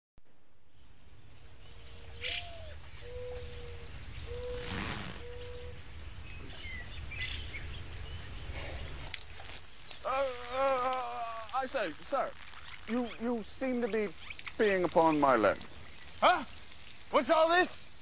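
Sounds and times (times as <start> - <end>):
bird chirps: 0.7 - 9.2, 12.5 - 17.0
high insect buzz: 2.0 - 17.6
bird calling short low notes: 2.2 - 5.8.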